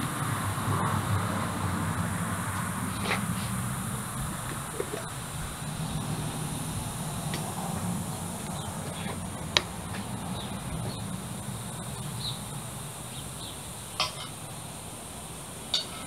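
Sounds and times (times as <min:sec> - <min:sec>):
steady low rumble: 0:00.0 - 0:15.7
bird chirps: 0:08.0 - 0:14.3
spoon clinking on metal pot: 0:15.7 - 0:16.0.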